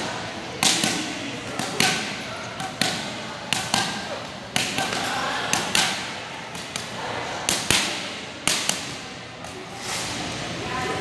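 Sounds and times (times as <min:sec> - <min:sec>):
boxing gloves striking focus mitts: 0:00.6 - 0:06.9.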